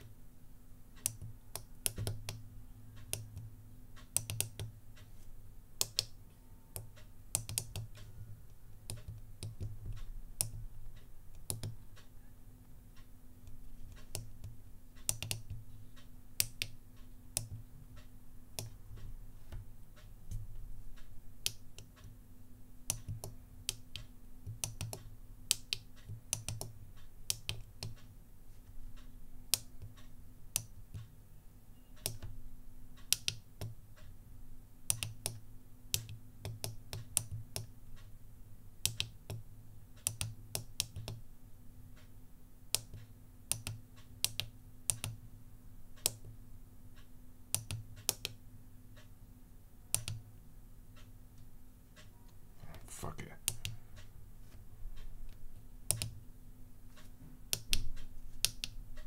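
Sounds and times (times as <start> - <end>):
keyboard switches clicking: 6.8 - 8.0.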